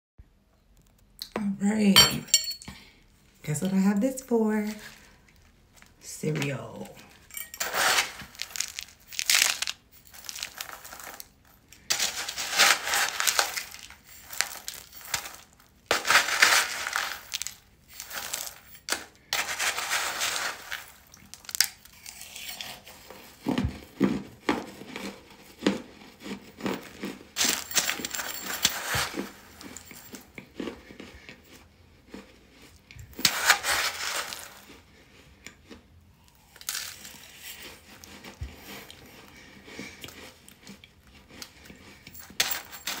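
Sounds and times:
spoon scraping in bowl: 7.3s - 9.2s, 11.9s - 21.0s
crunching in the mouth: 7.6s - 43.0s.

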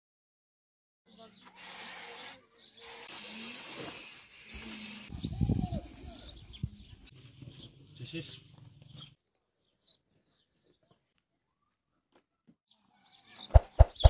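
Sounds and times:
spray-paint can hissing: 1.5s - 6.1s.

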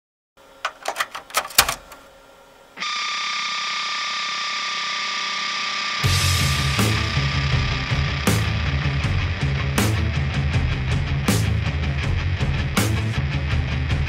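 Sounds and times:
floppy disk clicking into drive: 0.6s - 2.1s
distorted guitar note: 2.8s - 14.0s
rock band with drums and bass: 6.0s - 14.0s.

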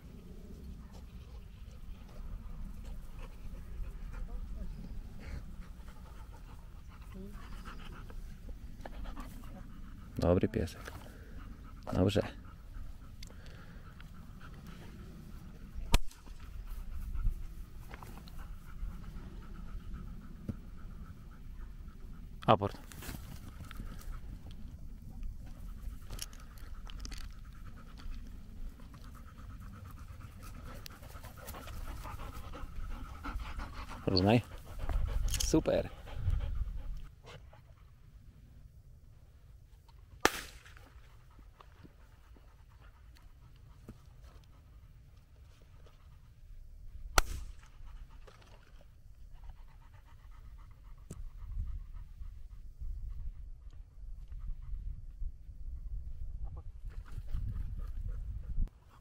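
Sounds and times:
dog panting: 0.7s - 38.0s, 40.9s - 46.4s, 47.5s - 55.2s
wind rumble on microphone: 34.6s - 37.1s, 49.1s - 58.8s
loud gunshot: 40.2s - 40.8s, 47.2s - 47.5s
faint sharp crack: 40.2s - 41.0s, 47.2s - 47.8s.

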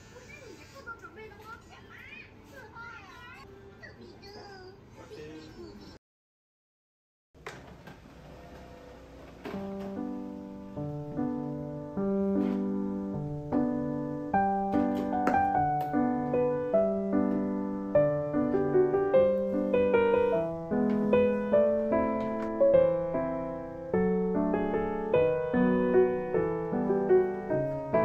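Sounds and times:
gentle piano music: 9.4s - 28.0s.

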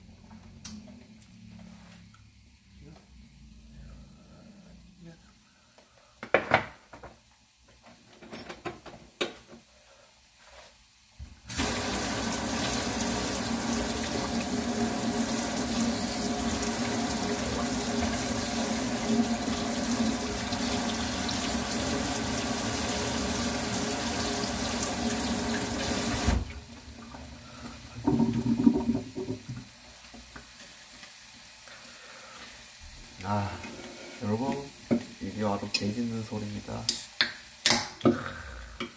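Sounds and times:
water running from tap: 11.5s - 29.8s.

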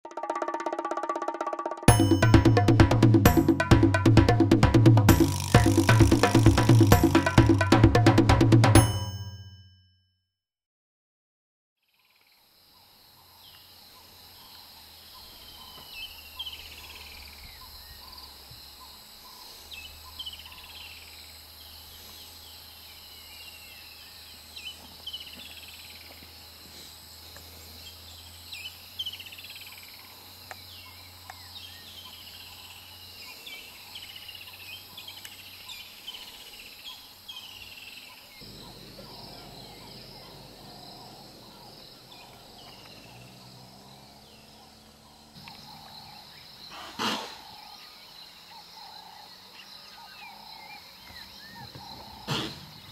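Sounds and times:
insects buzzing: 1.9s - 8.8s, 12.0s - 52.9s
birds calling: 12.8s - 52.9s
rough low rumble: 38.4s - 46.0s.

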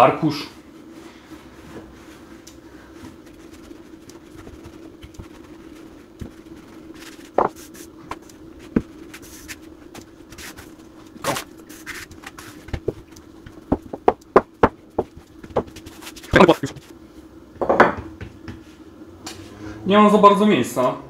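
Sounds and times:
steady low hum: 0.0s - 21.0s
dough rubbing and knocking: 1.4s - 17.0s.

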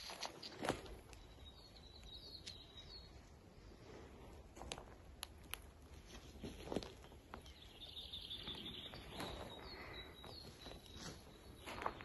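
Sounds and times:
footsteps on dry forest floor: 0.0s - 1.6s, 5.8s - 12.0s
bird chirping: 1.1s - 3.4s, 6.8s - 12.0s.

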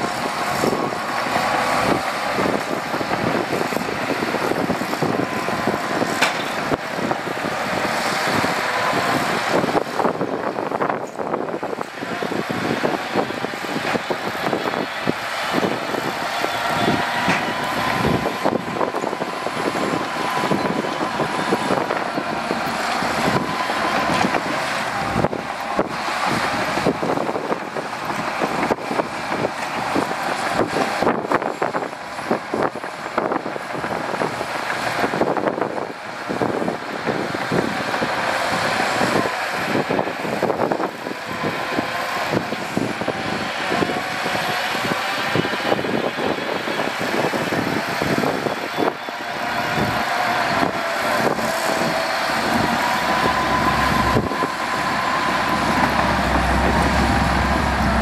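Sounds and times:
diesel truck engine running: 0.0s - 58.0s.

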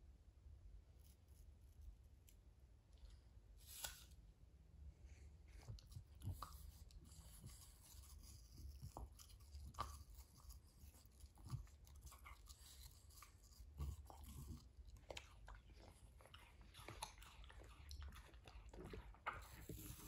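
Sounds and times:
dog chewing food: 5.8s - 20.0s.

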